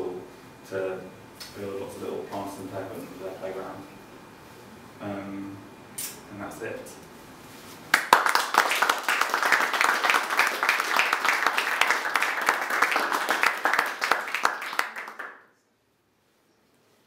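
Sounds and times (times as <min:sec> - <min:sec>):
audience applauding: 0:07.9 - 0:15.4.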